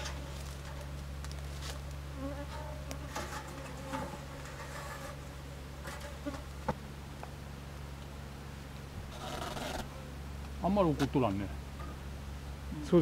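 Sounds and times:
bees buzzing: 0.0s - 8.3s.

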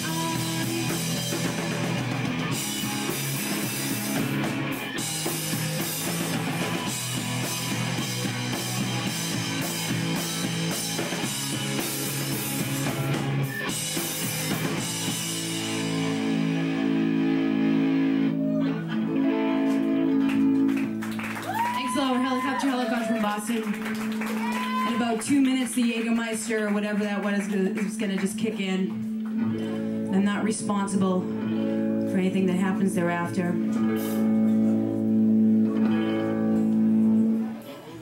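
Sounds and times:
drum kit with crashing cymbals: 0.0s - 16.3s, 33.9s - 34.4s
distorted electric guitars: 0.0s - 21.2s, 27.5s - 37.7s.

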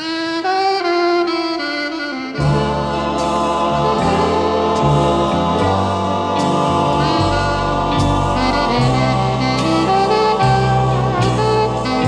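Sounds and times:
choir-like chords: 1.9s - 12.0s
stepping bass line: 2.4s - 12.0s.

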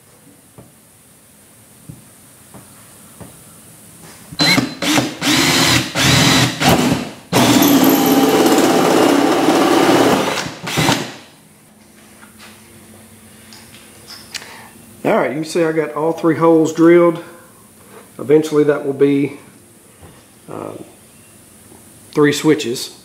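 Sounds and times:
cordless drill boring: 4.4s - 6.8s, 7.4s - 11.1s.

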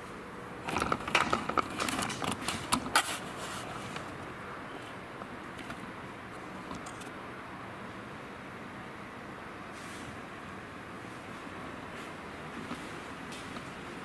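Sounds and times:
camcorder handling clicks and rustles: 0.7s - 3.2s.

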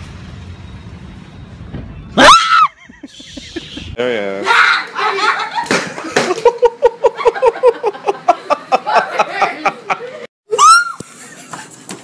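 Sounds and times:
high-pitched scream: 2.2s - 2.8s, 10.5s - 11.0s
people giggling: 2.8s - 4.0s, 5.0s - 10.3s, 11.1s - 12.0s.

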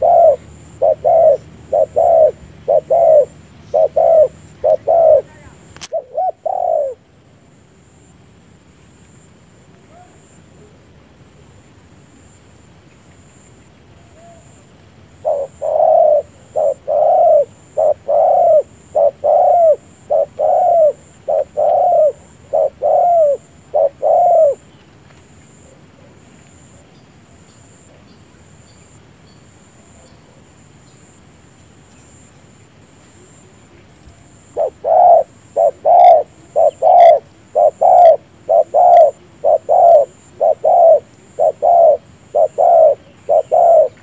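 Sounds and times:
dove cooing: 0.0s - 7.1s, 14.0s - 24.7s, 33.1s - 44.0s.

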